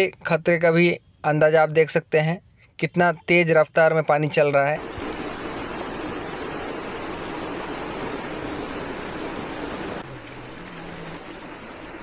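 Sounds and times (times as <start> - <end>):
floodwater rushing: 4.8 - 12.0.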